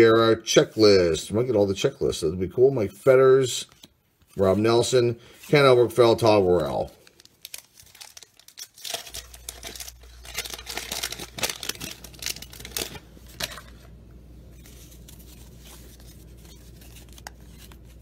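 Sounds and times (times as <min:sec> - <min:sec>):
wrapper tearing and crinkling: 0:06.5 - 0:13.9, 0:14.6 - 0:18.0
steady low hum: 0:09.1 - 0:18.0.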